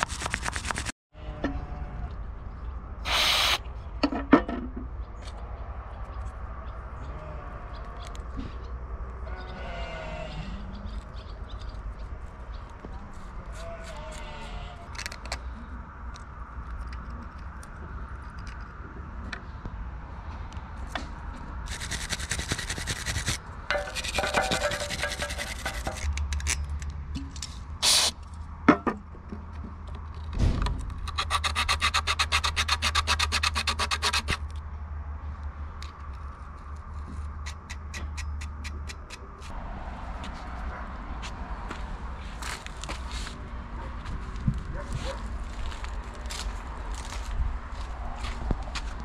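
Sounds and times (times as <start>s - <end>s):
scraping and rubbing: 0.0s - 1.0s, 21.6s - 26.7s, 30.9s - 34.6s
scrubbing strokes: 21.7s - 26.0s.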